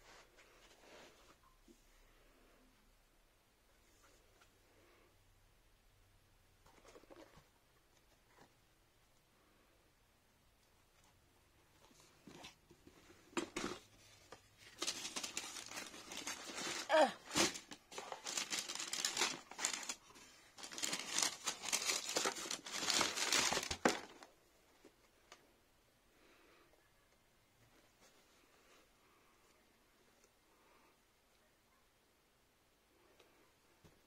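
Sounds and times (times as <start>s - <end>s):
tissue paper crinkling: 14.0s - 24.3s.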